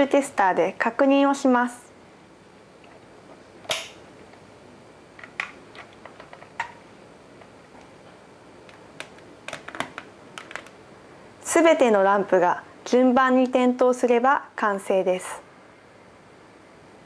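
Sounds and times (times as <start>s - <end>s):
plastic handling: 8.7s - 10.8s.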